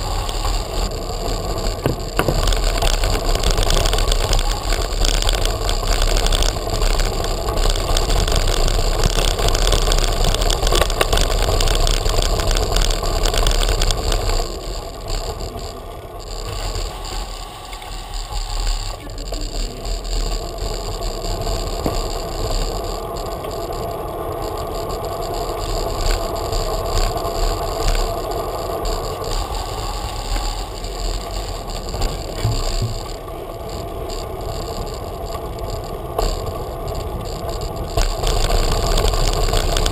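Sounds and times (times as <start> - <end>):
bicycle rattling over paving: 0.0 - 39.9.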